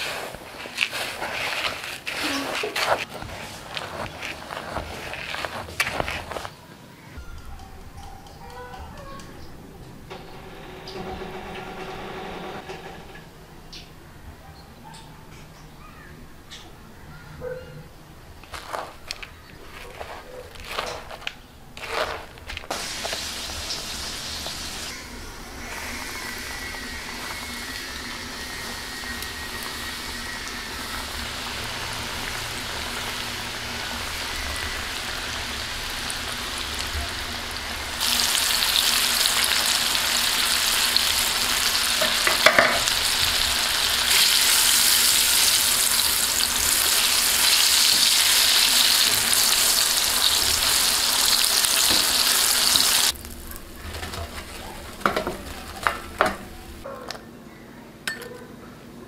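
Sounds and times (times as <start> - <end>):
chicken scraping in flour bowl: 0.0 - 6.6, 18.4 - 23.7
chicken sizzling in hot oil: 22.7 - 56.8.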